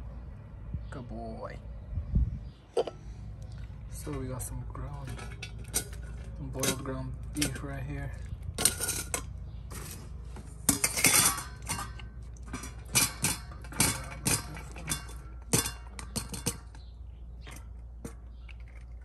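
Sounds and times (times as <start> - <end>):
colander knocking on steel bowls: 10.6 - 18.5.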